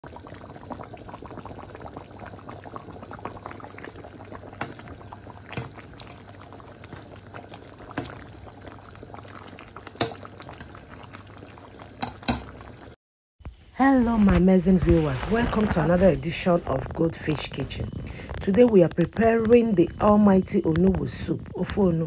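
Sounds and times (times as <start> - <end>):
sharp popping bubbles: 0.0 - 13.0
soup boiling and bubbling: 0.0 - 13.0, 14.2 - 22.0.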